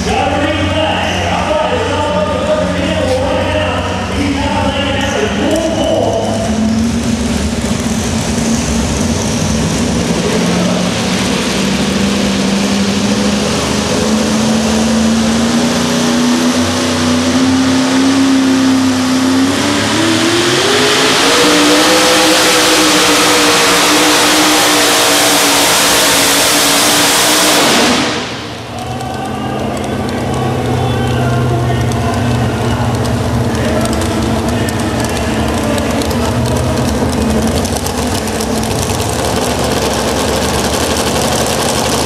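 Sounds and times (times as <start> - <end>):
truck engine revving: 0.0 - 42.0.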